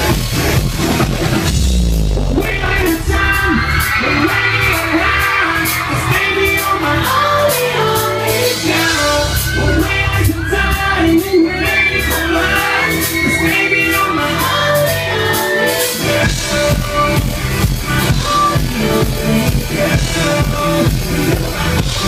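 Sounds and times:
live pop-rock band playing: 0:00.0 - 0:22.0
person singing into microphones: 0:02.3 - 0:22.0.

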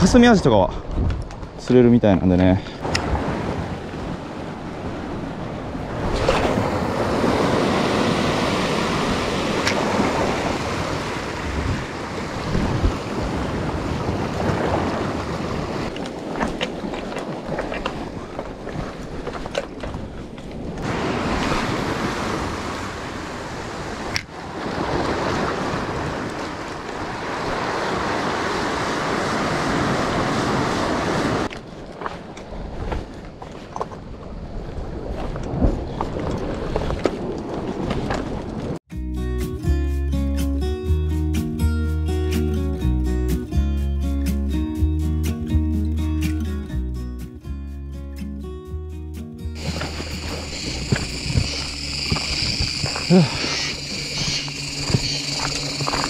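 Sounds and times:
wind on microphone: 0:00.8 - 0:01.6, 0:02.8 - 0:38.8, 0:49.6 - 0:56.0
surf washing over rocky shore: 0:02.8 - 0:19.8, 0:20.6 - 0:31.5, 0:49.6 - 0:56.0.

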